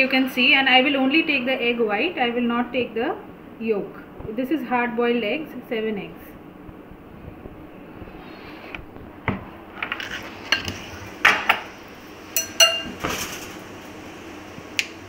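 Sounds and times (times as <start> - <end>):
glass bowl and knife clinking: 12.4 - 13.0.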